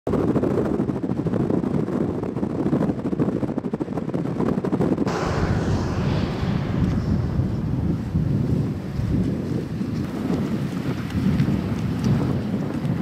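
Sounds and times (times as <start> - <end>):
wind buffeting microphone: 0.1 - 13.0.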